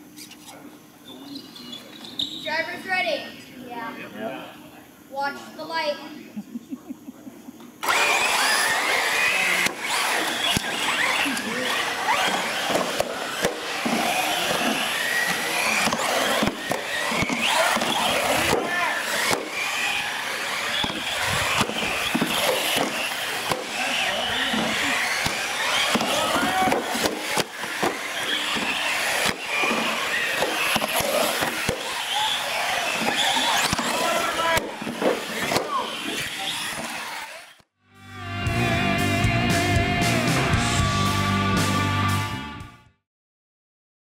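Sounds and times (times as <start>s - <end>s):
model car motors whining: 7.8s - 37.6s.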